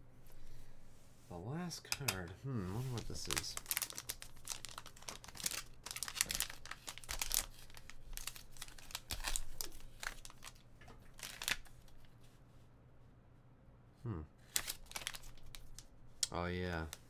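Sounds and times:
foil wrapper crinkling and tearing: 2.8 - 12.0, 14.4 - 15.9.

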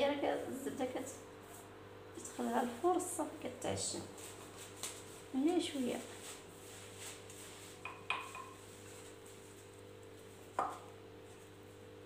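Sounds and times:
faint steady hum: 0.0 - 12.0
knocks and clinks on a mixing bowl: 7.8 - 8.6, 10.6 - 10.9.

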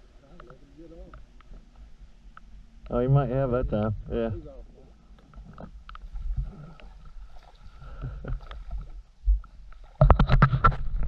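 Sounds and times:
faint high whine: 0.0 - 10.0
light clicks and knocks: 0.3 - 2.9
wind rumble on microphone: 5.3 - 11.0.

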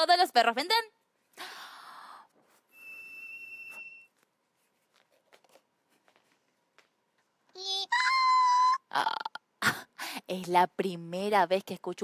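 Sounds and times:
high toy whistle tone: 2.7 - 4.1.

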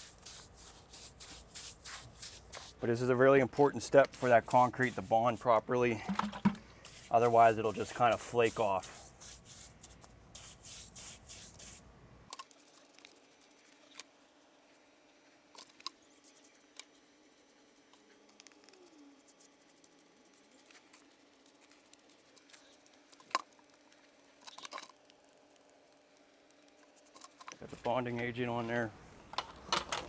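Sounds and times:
brush scrubbing concrete: 0.0 - 11.8, 12.6 - 23.0.

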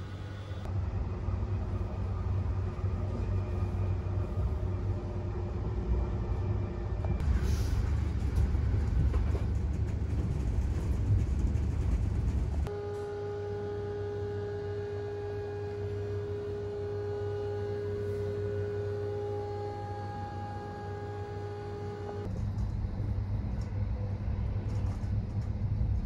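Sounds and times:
train rumble: 0.0 - 26.0.

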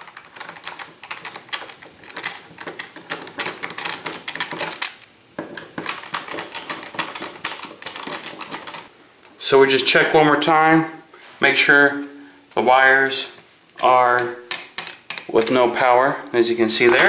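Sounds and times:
screwdriver clicking and scraping: 0.0 - 8.9, 13.7 - 15.9, 16.8 - 17.0.

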